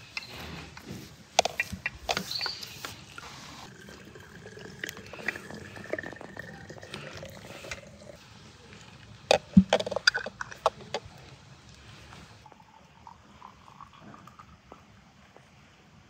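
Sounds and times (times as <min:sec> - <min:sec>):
glass bottles clinking: 0:03.7 - 0:08.2.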